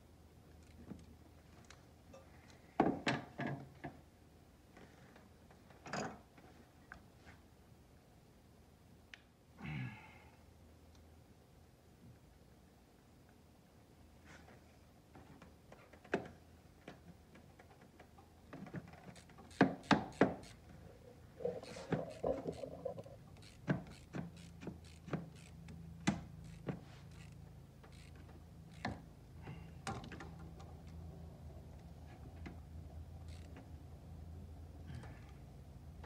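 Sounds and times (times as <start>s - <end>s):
hose clamps clicking and knocking: 15.7s - 20.8s
low steady hum: 20.3s - 24.0s.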